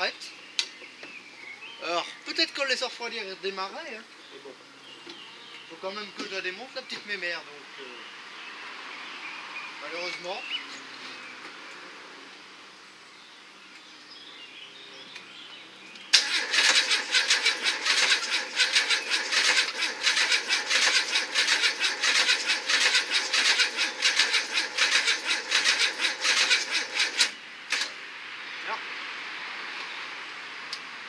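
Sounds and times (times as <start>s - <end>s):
engine cranking on starter motor: 16.1s - 28.0s.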